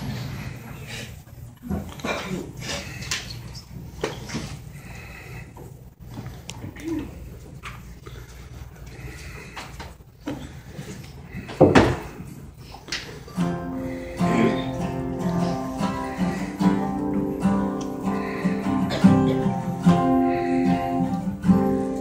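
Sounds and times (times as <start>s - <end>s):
acoustic guitar picked notes: 13.3s - 22.0s.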